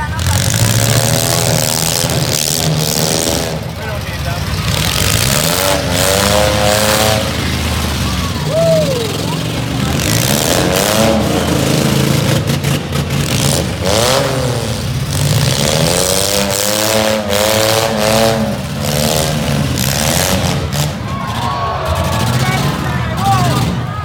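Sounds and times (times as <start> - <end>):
low engine rumble: 0.0 - 13.9
truck engines revving: 0.0 - 24.0.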